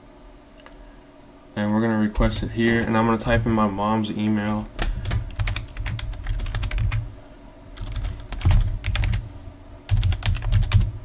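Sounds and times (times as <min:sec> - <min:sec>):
typing on computer keyboard: 0:04.8 - 0:07.0, 0:07.8 - 0:09.2, 0:09.9 - 0:10.9.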